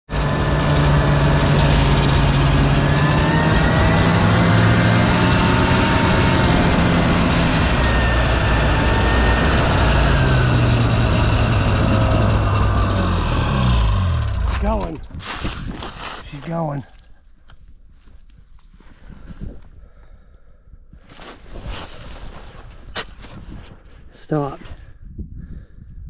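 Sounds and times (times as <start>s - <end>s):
snowmobile engine droning: 0.1s - 16.8s.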